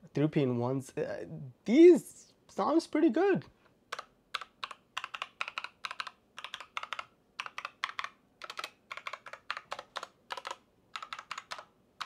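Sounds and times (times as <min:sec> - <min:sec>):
mechanical keyboard keystrokes: 0:03.9 - 0:11.7.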